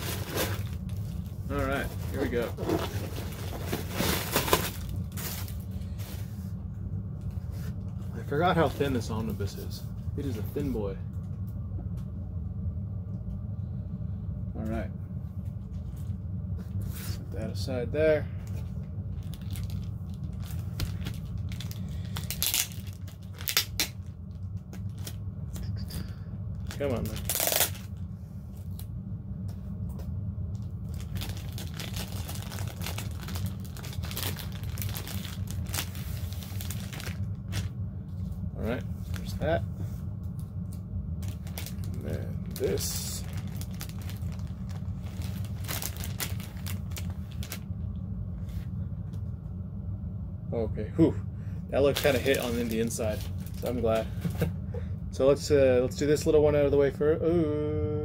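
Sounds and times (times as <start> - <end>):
plastic shrink-wrap crinkling: 0.0 - 6.2, 18.4 - 25.2, 26.5 - 28.8, 30.6 - 37.8, 41.2 - 47.7, 51.8 - 54.4
steady low hum: 0.0 - 58.0.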